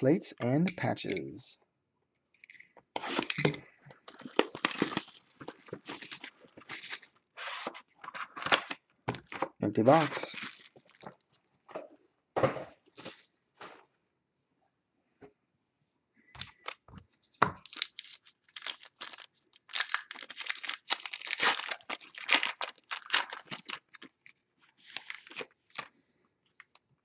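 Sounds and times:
foil wrapper tearing and crinkling: 4.1s - 8.8s, 9.9s - 11.2s, 17.6s - 25.9s.

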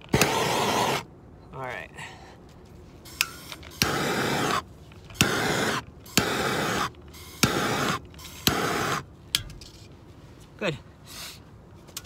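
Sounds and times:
gas torch hissing: 0.0s - 1.1s, 3.0s - 9.1s
torch igniter click: 0.1s - 1.0s.

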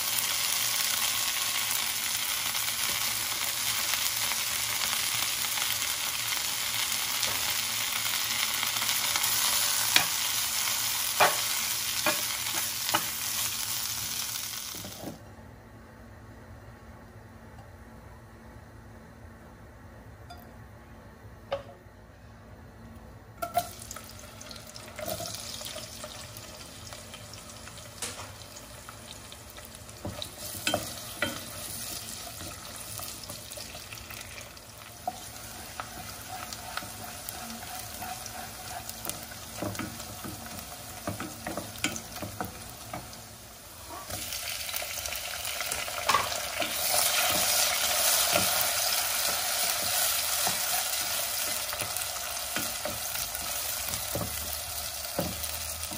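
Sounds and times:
onions sizzling in a pan: 0.0s - 15.2s, 23.4s - 55.9s
spatula scraping and tapping pan: 35.0s - 43.1s.

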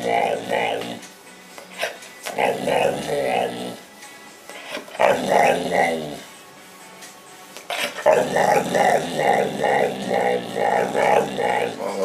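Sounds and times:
dog making talking vocal sounds: 0.0s - 1.0s, 1.8s - 3.8s, 4.7s - 6.2s, 7.7s - 12.0s.

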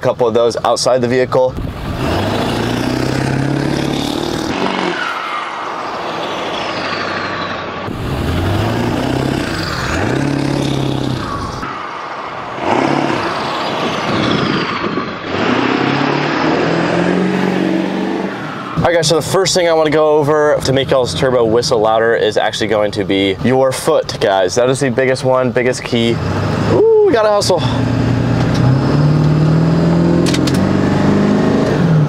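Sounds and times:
diesel truck engine revving: 1.6s - 20.8s, 26.0s - 32.0s.

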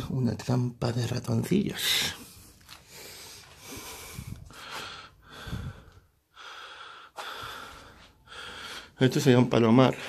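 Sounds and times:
person breathing through nose: 2.2s - 9.0s.

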